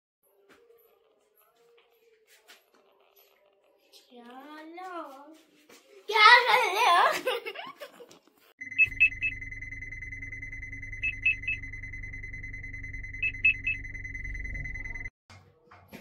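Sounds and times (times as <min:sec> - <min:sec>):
low hum: 0:08.6 - 0:15.1
quick electronic beeps: 0:08.6 - 0:15.1
steady high electronic tone: 0:08.6 - 0:15.1.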